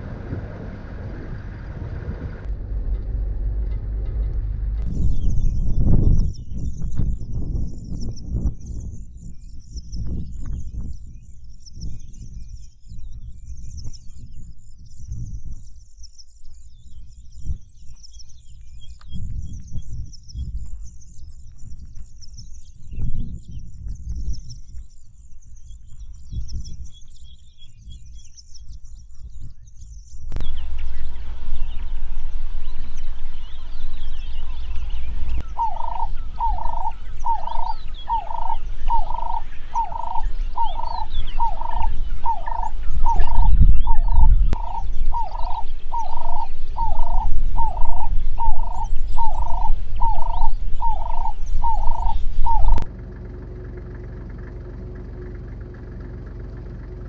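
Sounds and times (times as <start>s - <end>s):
steady hum: 0.0s - 6.1s, 30.4s - 57.0s
low rumble: 0.0s - 15.5s, 30.2s - 57.0s
birds chirping: 0.0s - 57.0s.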